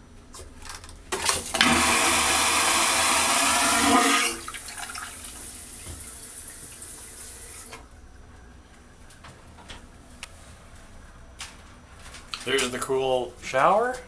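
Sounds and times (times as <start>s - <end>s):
vacuum toilet flushing: 1.2s - 7.8s
quiet hiss: 5.2s - 14.0s.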